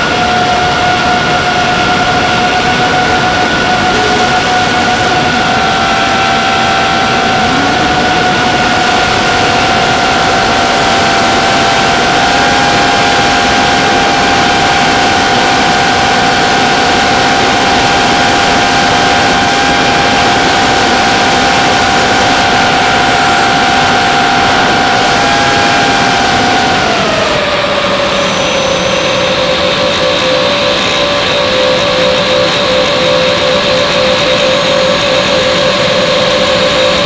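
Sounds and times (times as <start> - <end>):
electric motor and propeller whining: 0.0 - 37.0
wind noise rushing: 1.8 - 12.7.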